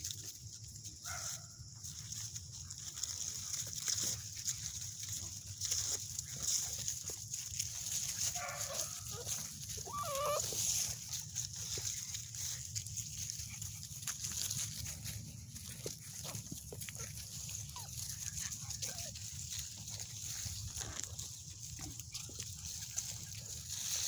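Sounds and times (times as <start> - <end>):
wavering animal calls: 9.1 - 11.0.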